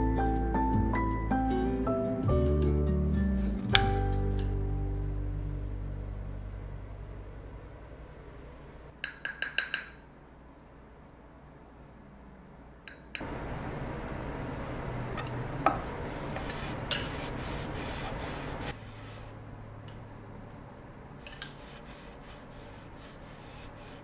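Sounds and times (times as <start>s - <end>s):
steady noise: 4.6s - 9.0s, 10.0s - 24.0s
kitchenware clinking: 15.1s - 17.4s, 21.2s - 21.8s.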